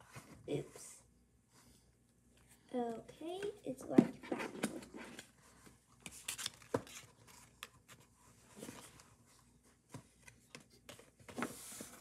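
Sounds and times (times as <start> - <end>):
paper rustling and sliding: 11.1 - 12.0.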